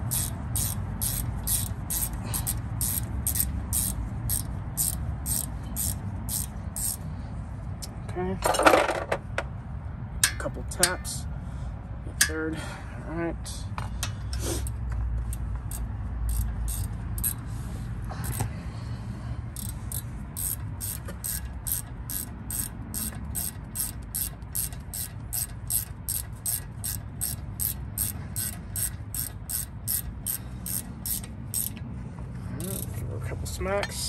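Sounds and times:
ratchet wrench clicking: 0.0 - 7.1, 14.0 - 18.5, 19.5 - 31.9, 32.6 - 33.1.

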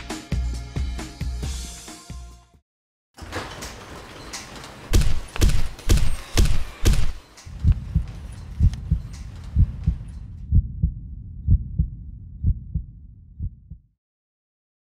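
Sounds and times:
heartbeat double thump: 5.0 - 13.9.

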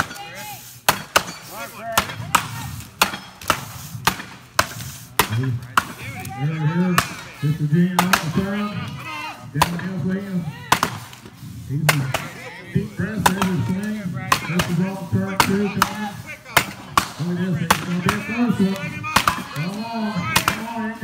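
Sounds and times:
axes chopping wood: 0.8 - 6.3, 6.9 - 8.4, 9.6 - 9.9, 10.7 - 12.3, 13.2 - 20.8
man calling out: 5.4 - 10.7, 11.6 - 16.6, 17.2 - 21.0.

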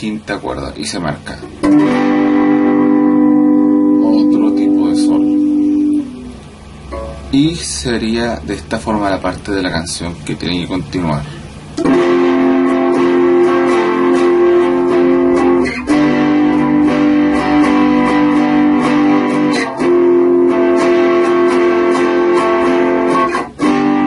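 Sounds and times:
guitar strumming chords: 1.4 - 7.8, 11.4 - 24.0.

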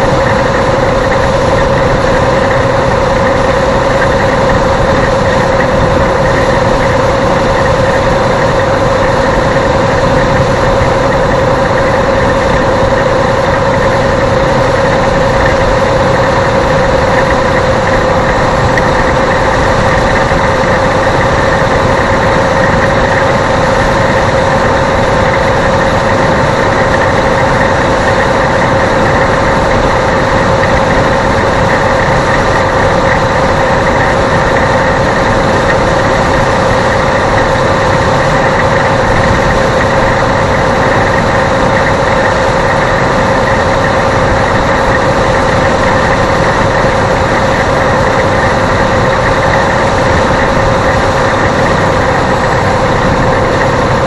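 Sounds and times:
car road and engine noise: 0.0 - 54.0
mid-pitched hum: 0.0 - 54.0.

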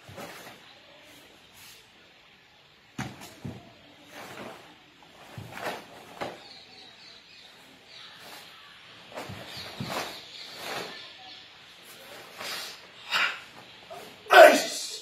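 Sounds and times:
karate gi swishes and snaps: 0.0 - 0.6, 3.0 - 6.4, 9.1 - 11.0, 11.9 - 12.9.

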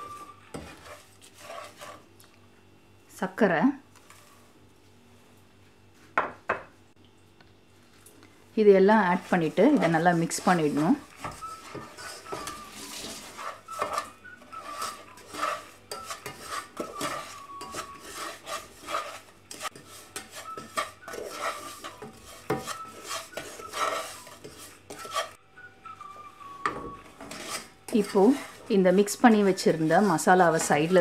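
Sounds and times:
wooden spatula scraping a pot: 0.0 - 2.1, 9.0 - 25.4, 27.0 - 31.0.

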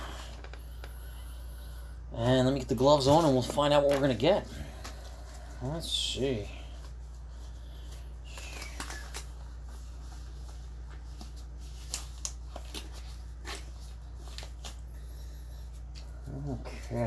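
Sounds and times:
steady low hum: 0.0 - 17.0
gloves rustling and snapping: 3.0 - 5.5, 6.7 - 17.0.

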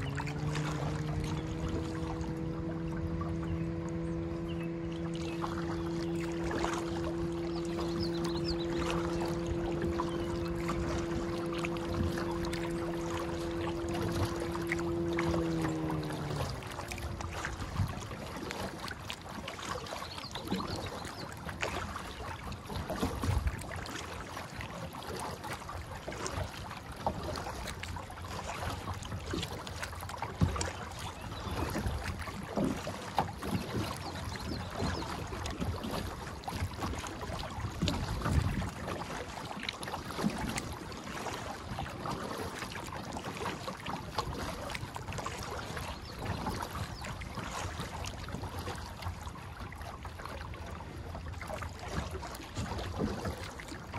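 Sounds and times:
water wash: 0.0 - 30.8
paddle splashes against hull: 0.0 - 53.9
wind rumble on microphone: 0.0 - 53.9.

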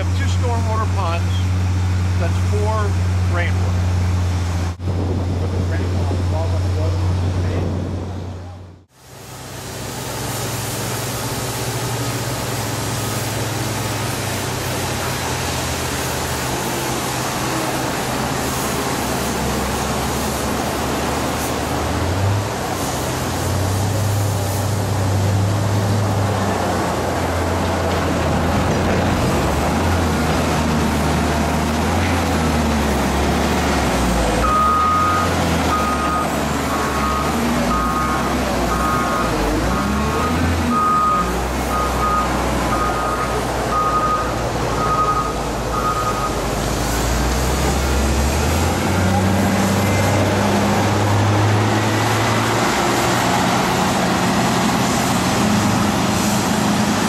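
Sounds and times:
diesel engine humming: 0.0 - 57.0
reversing alarm beeping: 34.4 - 46.4.

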